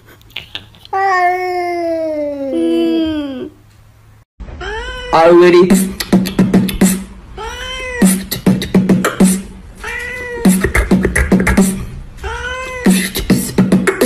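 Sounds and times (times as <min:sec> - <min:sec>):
beatbox-style beats: 0:05.6 - 0:07.2, 0:08.0 - 0:09.6, 0:10.4 - 0:11.9, 0:12.7 - 0:14.0.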